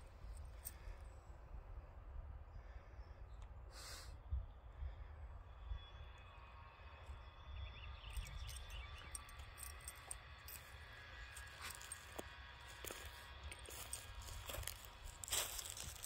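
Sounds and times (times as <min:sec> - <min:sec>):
faint high chirping: 0:05.4 - 0:10.6
dry grass rustling: 0:10.4 - 0:16.0.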